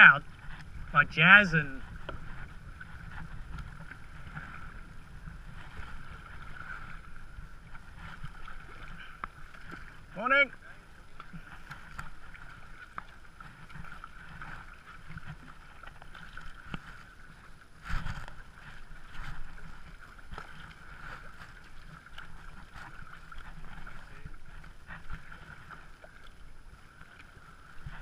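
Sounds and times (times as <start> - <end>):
paddle strokes in water: 0.0 - 28.0
water slapping plastic hull: 11.1 - 28.0.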